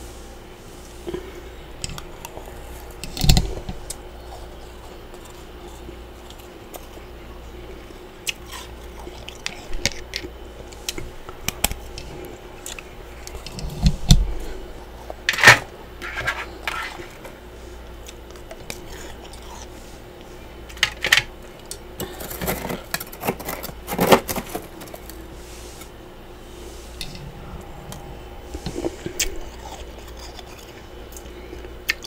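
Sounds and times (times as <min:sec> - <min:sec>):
frost chunks crunching and clinking: 0:20.7 - 0:25.2, 0:28.8 - 0:32.0.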